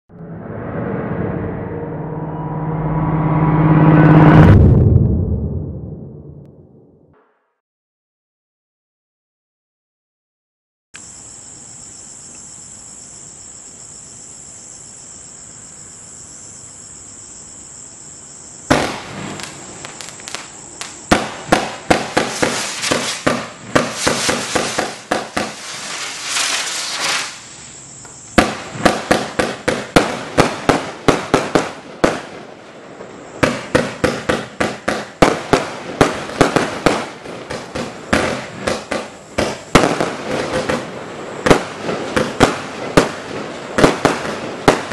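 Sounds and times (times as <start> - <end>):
crickets chirping: 11.0 - 44.9
fireworks launching and crackling: 18.6 - 44.9.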